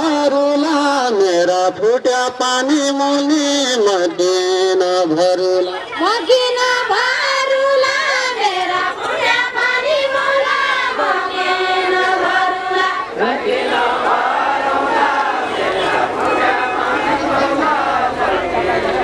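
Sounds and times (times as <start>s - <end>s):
women singing folk song together: 6.1s - 19.0s.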